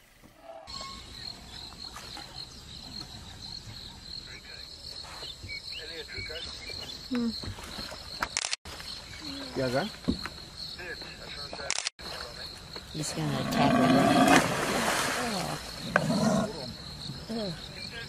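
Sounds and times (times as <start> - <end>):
insects chirring: 0.3 - 18.0
sharp click: 8.2 - 8.6.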